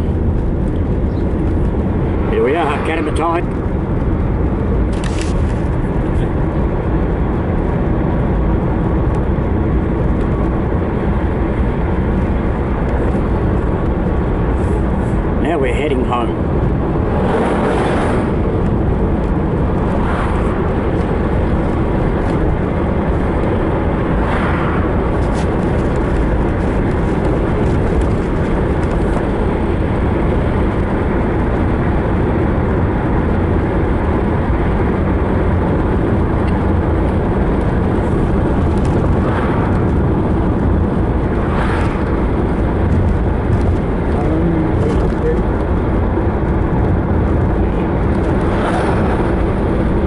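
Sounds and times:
car road and engine noise: 0.0 - 50.0.

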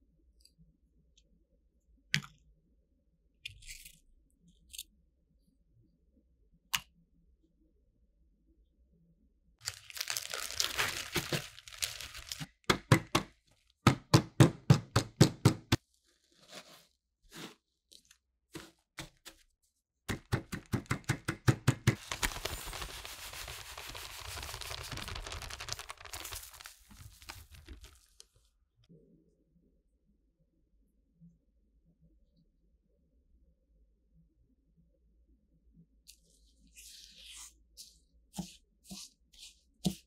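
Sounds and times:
cookie crumbs crunching: 9.6 - 12.5, 22.0 - 28.3
plastic bag crinkling: 9.6 - 12.5, 22.0 - 28.4.

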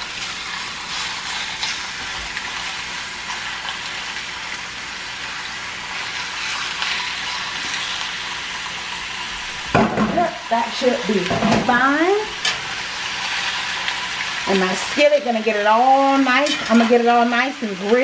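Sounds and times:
chicken sizzling in oil: 0.0 - 18.0
fork moving food in a pan: 16.3 - 17.0.

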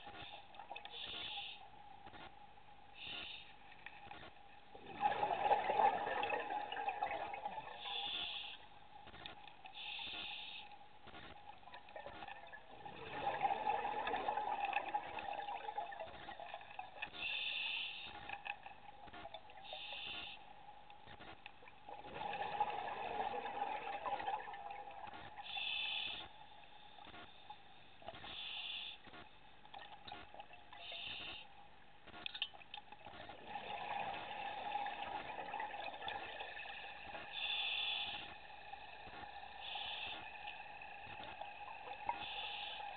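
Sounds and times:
faint steady tone: 0.0 - 42.9
bubbles gurgling underwater: 4.8 - 7.9, 21.8 - 25.1.

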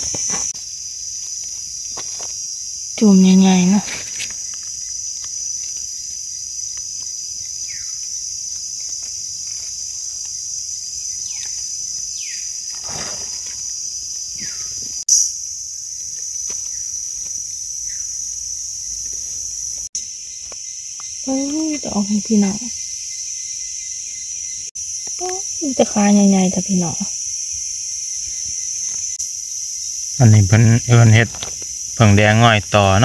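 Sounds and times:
insect chorus drone: 0.0 - 33.0.

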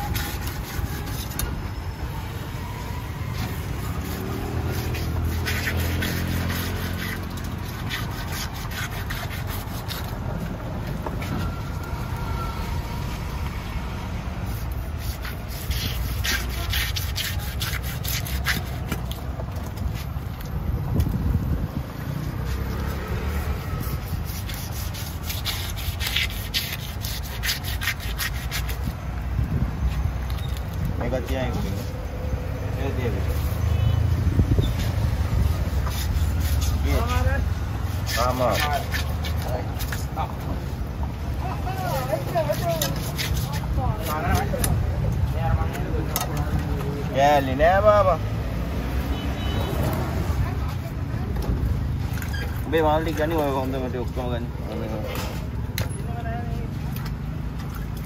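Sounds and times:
knife scraping fish scales: 0.0 - 1.9, 3.4 - 11.7, 14.4 - 20.3, 22.3 - 29.2, 33.2 - 40.4, 41.6 - 46.3.

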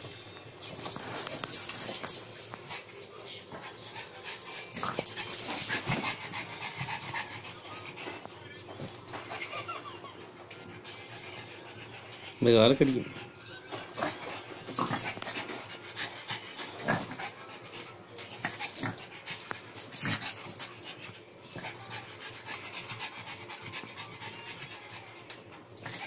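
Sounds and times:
puppy breathing hard: 0.8 - 9.4, 13.1 - 26.0.

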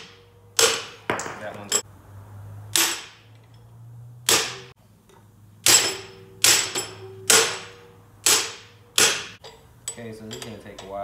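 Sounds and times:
hammer striking metal: 0.0 - 1.9, 2.7 - 3.3, 4.2 - 4.8, 5.6 - 9.4.

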